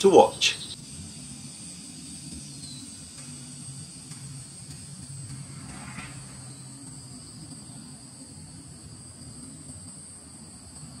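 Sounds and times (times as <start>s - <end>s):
tropical insects droning: 0.0s - 11.0s
low rumble: 3.5s - 9.1s.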